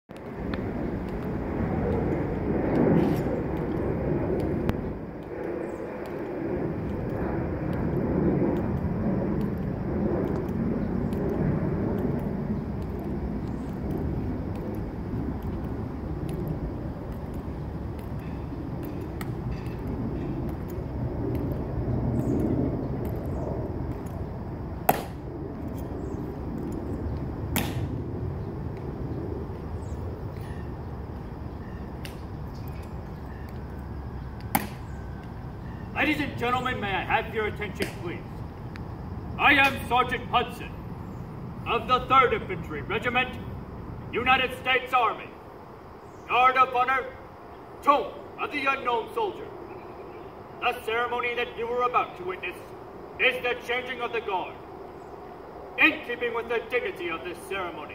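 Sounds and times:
outdoor rumble: 0.1s - 57.9s
heels clicking: 9.4s - 21.7s.

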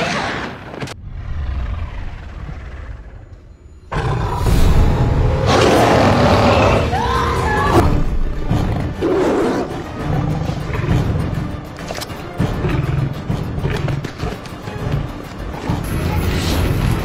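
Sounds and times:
tiger roaring and snarling: 3.9s - 11.4s.

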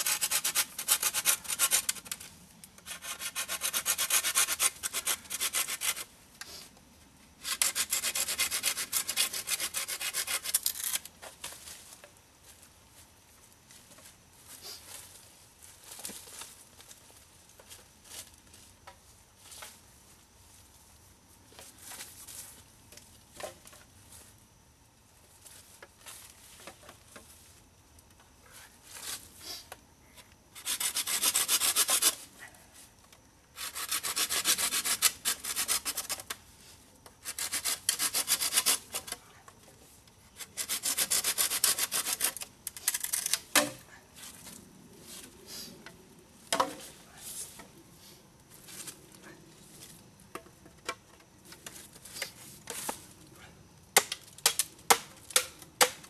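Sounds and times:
saw rasping through bamboo: 0.0s - 2.1s, 2.8s - 6.1s, 7.4s - 11.1s, 30.6s - 32.2s, 33.6s - 36.4s, 37.2s - 39.2s, 40.4s - 43.4s.

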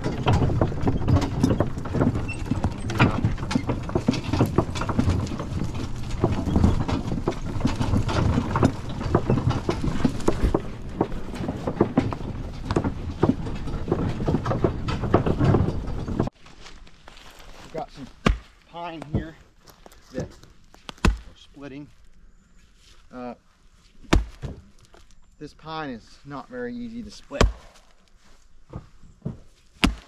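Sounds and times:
horses' hoofbeats: 0.0s - 16.4s
wooden wagon clattering and rumbling: 0.0s - 22.0s, 24.1s - 30.0s.

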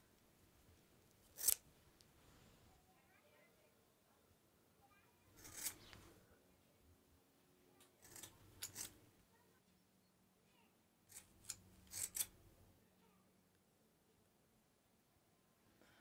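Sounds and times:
scissors cutting hair: 1.3s - 1.6s, 5.4s - 6.0s, 8.0s - 9.0s, 11.1s - 12.4s.

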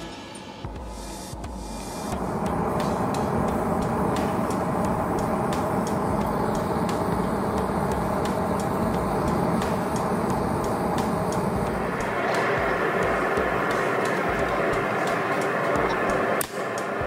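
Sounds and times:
forge flame rushing: 2.0s - 17.0s.

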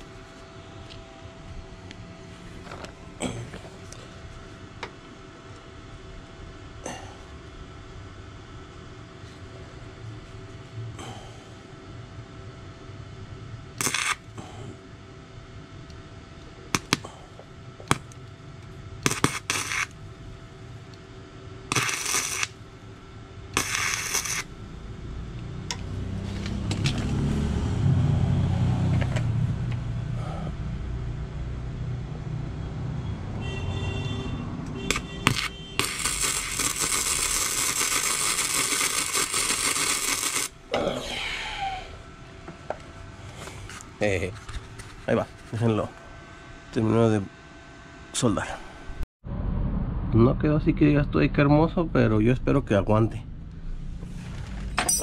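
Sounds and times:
welder arc crackling: 13.7s - 14.4s, 16.7s - 17.1s, 17.8s - 20.0s, 20.9s - 22.8s, 23.5s - 27.1s, 34.8s - 40.7s
low rumble: 48.8s - 54.8s.

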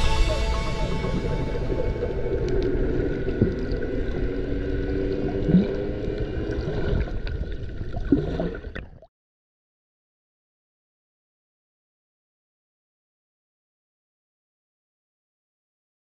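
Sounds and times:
water gurgling underwater: 0.7s - 9.1s.

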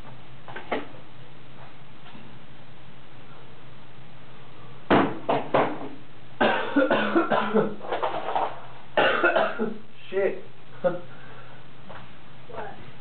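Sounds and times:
person coughing: 6.4s - 7.8s, 9.0s - 9.8s.

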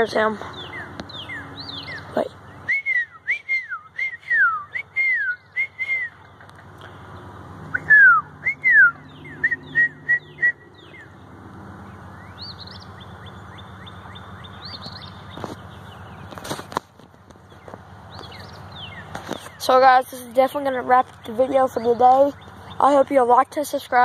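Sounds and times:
person whistling bird call: 2.7s - 6.2s, 7.8s - 10.6s.

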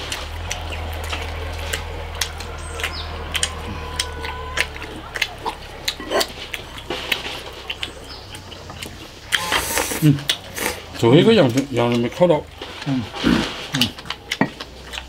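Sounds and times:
chewing and mouth noises: 0.0s - 15.0s.

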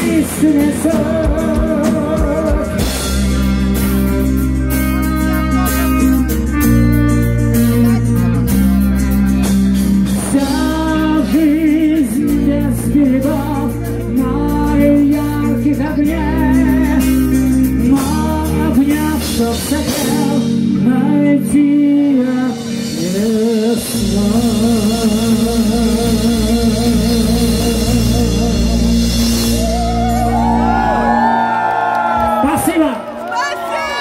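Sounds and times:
man singing with vibrato: 0.0s - 3.7s, 9.9s - 30.2s
heavy metal band playing: 0.0s - 32.9s.

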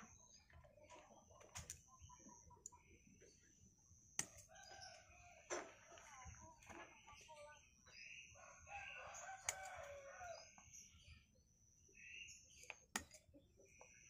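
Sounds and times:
pruning scissors snipping twigs: 4.2s - 4.6s, 9.4s - 9.9s, 12.7s - 13.2s.

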